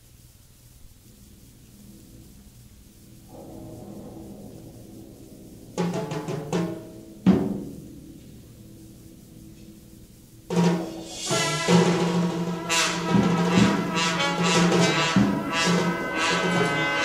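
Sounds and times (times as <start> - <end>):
trombone ensemble playing: 10.5 - 17.0.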